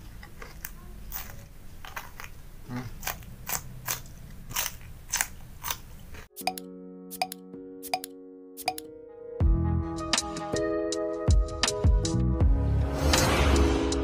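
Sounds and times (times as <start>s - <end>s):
crunchy chewing of raw vegetables: 0.0s - 6.3s
music with steady notes and ticks: 6.3s - 12.6s.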